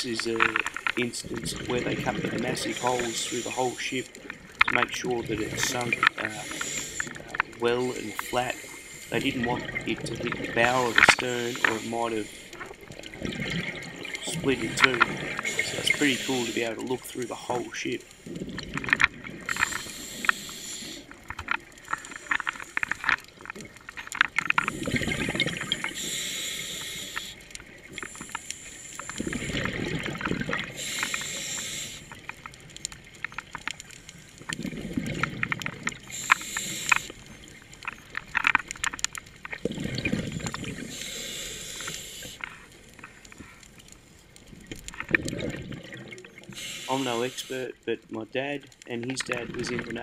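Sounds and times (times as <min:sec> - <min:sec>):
bubbles clicking and crackling: 0:00.0 - 0:50.0
diver breathing through regulator: 0:02.5 - 0:04.2, 0:05.5 - 0:09.4, 0:10.6 - 0:17.5, 0:19.4 - 0:21.1, 0:24.6 - 0:29.8, 0:30.6 - 0:32.2, 0:36.0 - 0:37.2, 0:40.0 - 0:42.6, 0:46.5 - 0:47.6.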